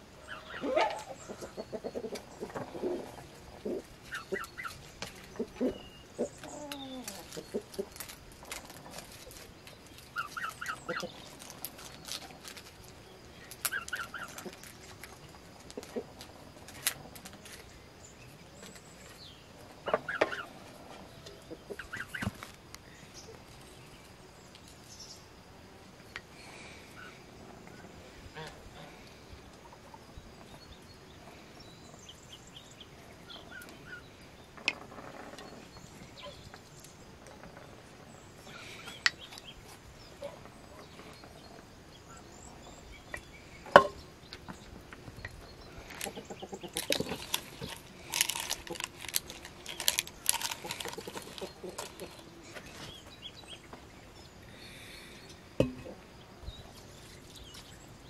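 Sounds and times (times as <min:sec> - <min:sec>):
faint bird chirps: 0:00.2 - 0:12.2.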